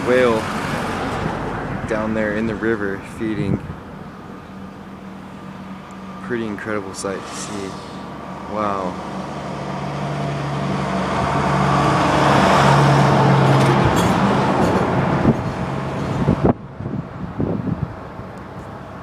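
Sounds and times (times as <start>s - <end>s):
vehicle passing by: 4.6s - 16.5s.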